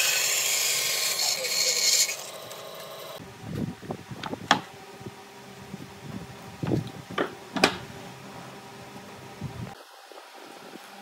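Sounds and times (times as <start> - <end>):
bandsaw motor running: 0.0 - 3.2.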